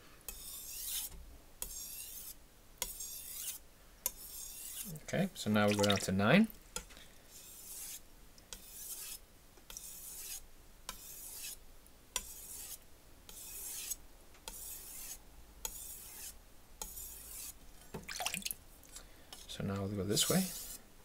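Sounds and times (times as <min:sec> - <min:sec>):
knife scraping on whetstone: 0:00.3 - 0:04.9, 0:07.3 - 0:11.6, 0:12.2 - 0:17.6, 0:20.2 - 0:20.8.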